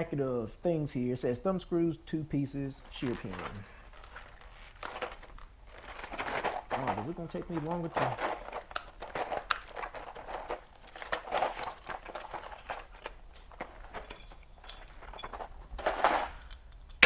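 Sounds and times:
plastic bag crinkling: 2.8s - 14.1s.

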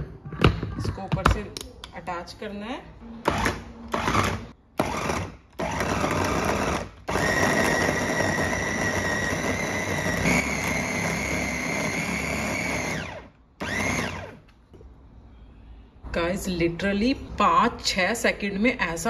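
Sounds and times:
electric food chopper whining: 3.3s - 14.5s.

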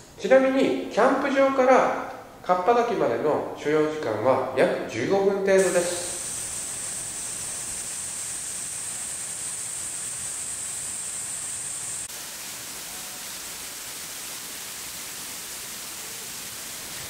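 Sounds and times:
waterfall pouring onto rocks: 5.6s - 17.0s.

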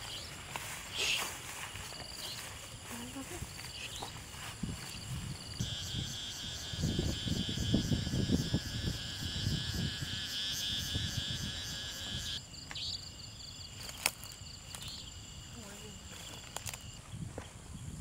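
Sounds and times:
rustling in grass: 0.0s - 6.1s, 13.7s - 17.1s
insect pulsing trill: 0.0s - 17.2s.

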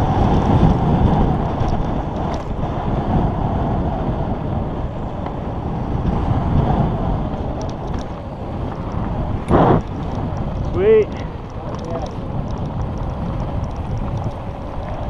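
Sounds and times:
bike tyres rolling on gravel: 0.0s - 15.0s
wind buffeting microphone: 0.0s - 15.0s
faint clicks and rattles: 7.4s - 15.0s.

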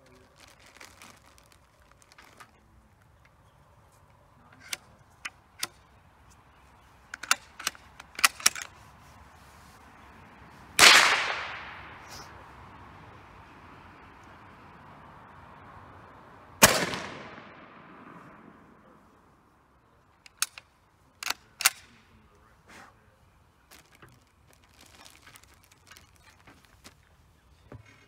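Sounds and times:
rifle bolt clicking and rattling: 4.6s - 5.9s, 7.0s - 8.8s, 20.2s - 22.0s
rifle shot echoing: 10.8s - 12.3s, 16.6s - 18.8s.

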